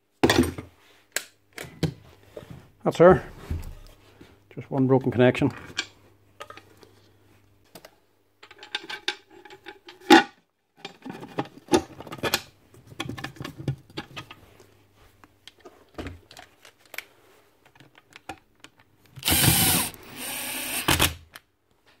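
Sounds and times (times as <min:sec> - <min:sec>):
cordless drill driving screw: 0:19.2 - 0:21.2.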